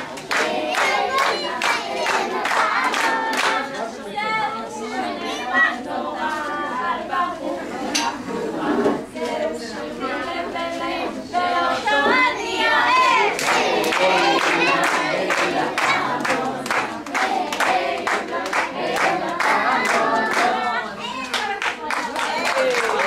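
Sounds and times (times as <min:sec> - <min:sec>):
hand claps: 0:00.0 - 0:03.6, 0:13.4 - 0:20.6, 0:21.2 - 0:23.0
children singing: 0:00.0 - 0:21.4.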